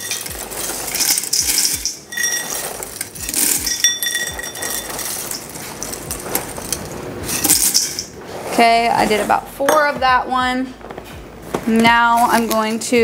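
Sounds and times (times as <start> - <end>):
metal cup clinking on pot: 0.0 - 8.1
cereal rattling into pot: 0.0 - 8.2
plastic bag rustling: 0.0 - 9.4.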